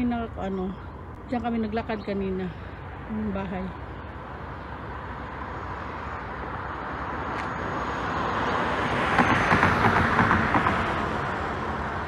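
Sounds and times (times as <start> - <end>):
car passing: 0.0 - 12.0.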